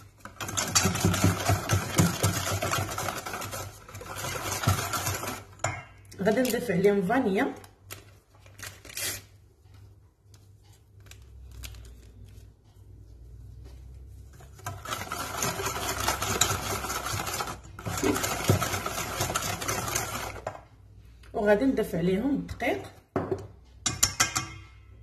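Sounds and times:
whisk beating in steel bowl: 0:00.0 - 0:05.9, 0:14.1 - 0:20.6.

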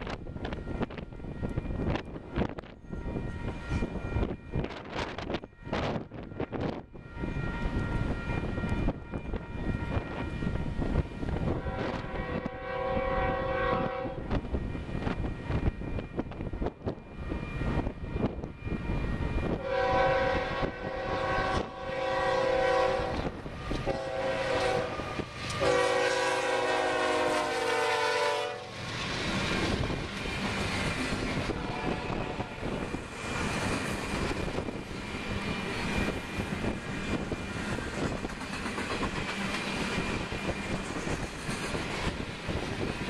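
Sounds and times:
train wheels on rails: 0:00.0 - 0:43.0
wind buffeting microphone: 0:00.0 - 0:43.0
locomotive air horn blasts: 0:11.5 - 0:14.3, 0:19.6 - 0:28.8, 0:31.5 - 0:32.8.

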